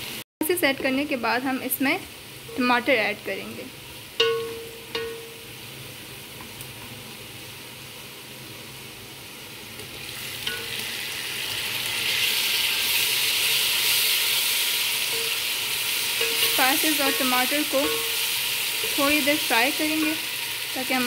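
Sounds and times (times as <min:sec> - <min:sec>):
onions sizzling in oil: 0:00.0 - 0:21.0
light clink on pot: 0:04.2 - 0:05.3, 0:16.2 - 0:18.2.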